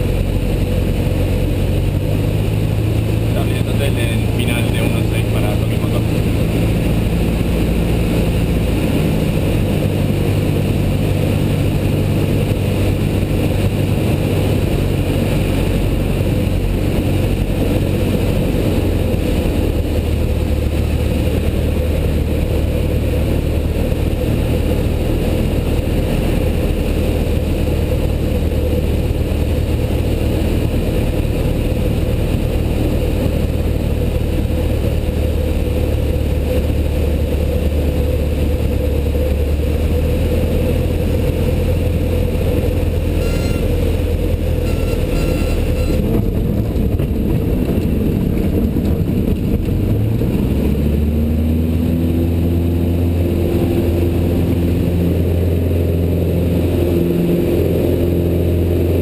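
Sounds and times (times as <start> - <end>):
light aircraft engine droning: 0.0 - 59.0.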